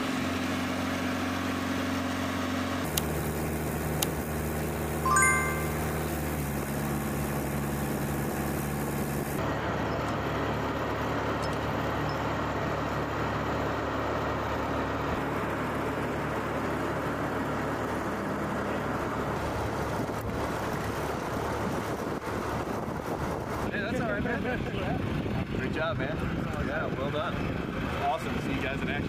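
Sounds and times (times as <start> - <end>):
engine hum: 5.8 - 25.2.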